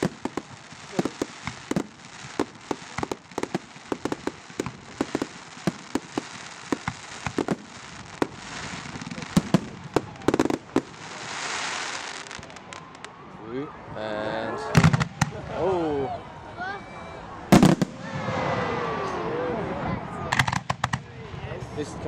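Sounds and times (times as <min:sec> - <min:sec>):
fireworks hiss: 0:00.0 - 0:12.6
fireworks bangs and pops: 0:00.0 - 0:13.1, 0:14.8 - 0:15.5, 0:17.5 - 0:18.6, 0:20.3 - 0:21.2.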